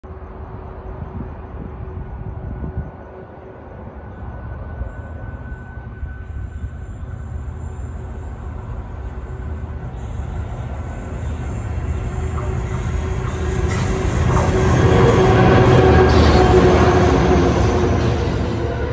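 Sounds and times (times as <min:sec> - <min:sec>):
diesel locomotive engine rumble: 0:00.0 - 0:18.9.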